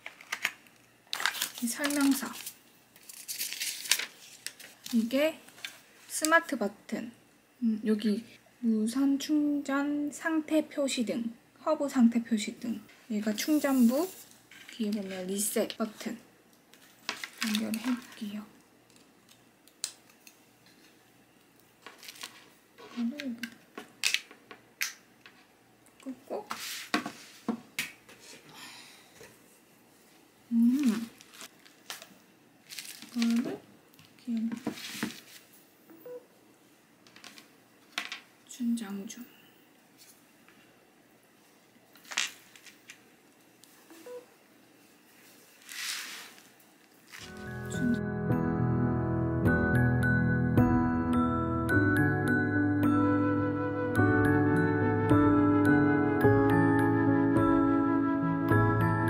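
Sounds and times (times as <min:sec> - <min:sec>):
music: 0:47.3 - 0:59.0.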